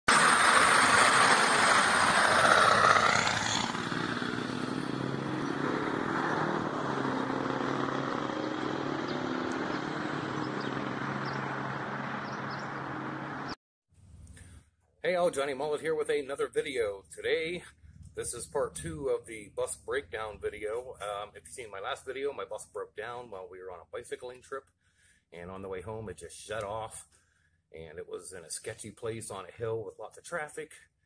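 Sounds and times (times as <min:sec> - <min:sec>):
bus engine driving past: 0:00.1 - 0:13.6.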